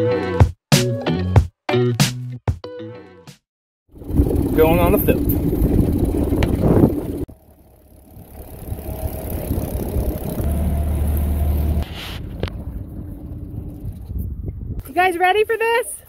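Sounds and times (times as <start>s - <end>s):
outboard motor running: 3.9s - 14.3s.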